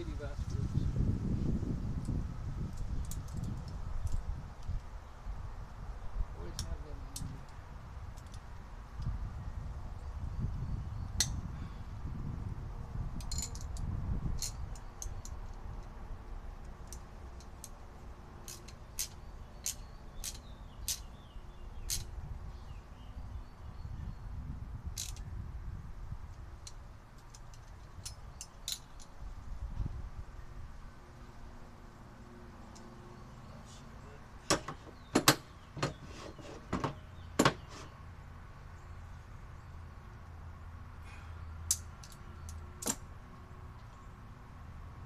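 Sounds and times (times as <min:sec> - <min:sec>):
metal tools clicking on fitting: 0:13.2 - 0:15.9, 0:18.4 - 0:21.1, 0:21.8 - 0:22.1, 0:25.0 - 0:25.2, 0:41.7 - 0:43.0.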